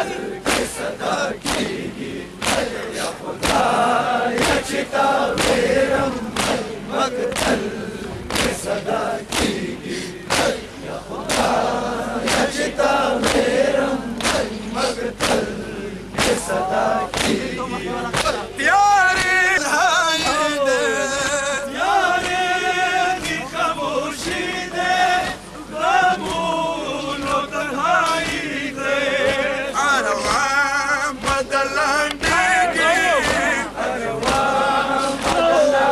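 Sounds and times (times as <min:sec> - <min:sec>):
crowd of men chanting a lament: 0:00.0 - 0:35.9
rhythmic chest-beating thumps: 0:00.0 - 0:35.9
man singing a wavering melody: 0:16.5 - 0:21.8.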